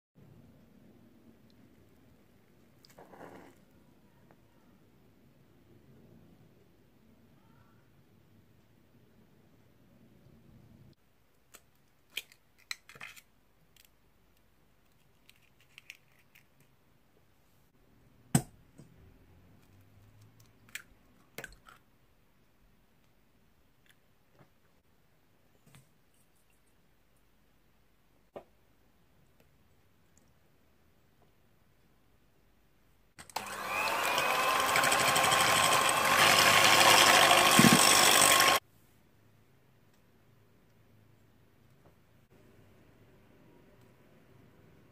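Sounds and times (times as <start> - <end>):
electric hand mixer whirring: 33.2 - 38.6.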